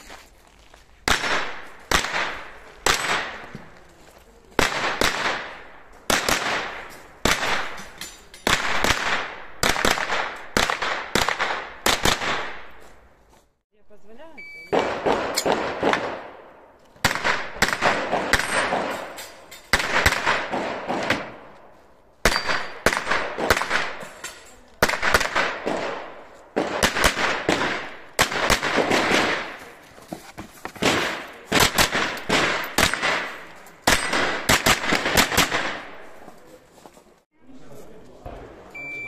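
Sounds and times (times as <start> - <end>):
gunshots with echo: 1.0 - 3.5, 4.6 - 7.8, 14.7 - 21.5, 22.2 - 24.1, 24.8 - 29.8, 30.8 - 36.1.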